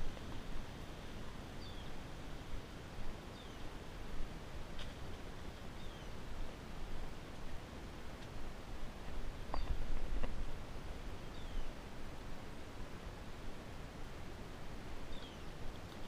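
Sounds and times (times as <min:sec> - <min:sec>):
low rumble of wind: 0:00.0 - 0:16.0.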